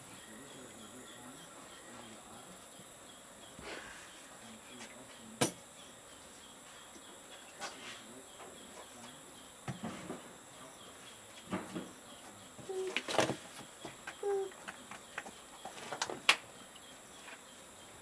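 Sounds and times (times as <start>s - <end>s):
high-pitched insect drone: 0.0s - 11.3s.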